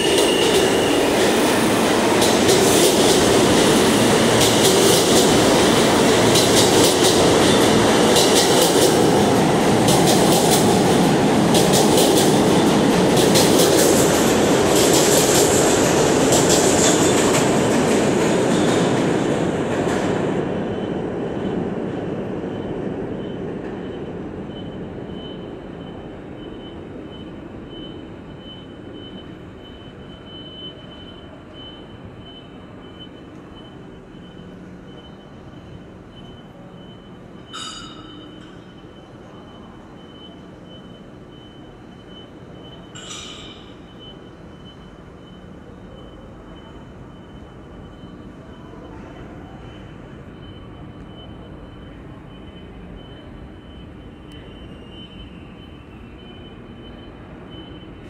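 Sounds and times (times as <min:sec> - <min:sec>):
train wheels clattering: 0:00.0 - 0:20.3.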